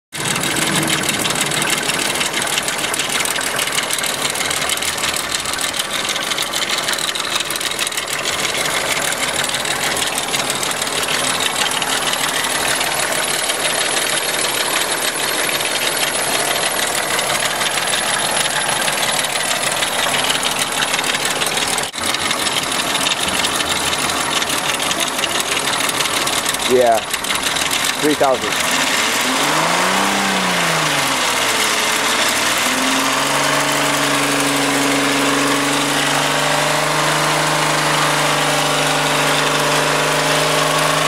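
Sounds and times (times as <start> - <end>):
metallic rattling clatter: 0.1 - 29.2
car engine running: 0.1 - 41.0.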